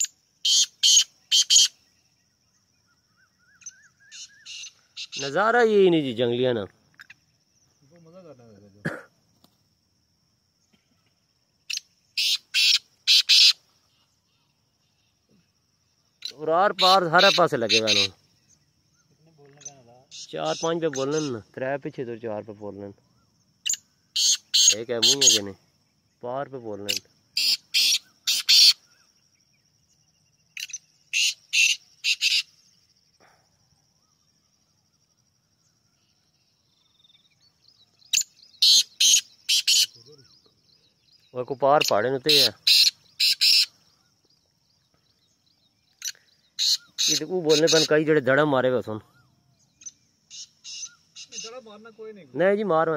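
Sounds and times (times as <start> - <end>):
francolin harsh calls: 0.0 - 9.4, 10.2 - 52.9
francolin calling harsh notes: 16.2 - 18.2, 24.2 - 25.5.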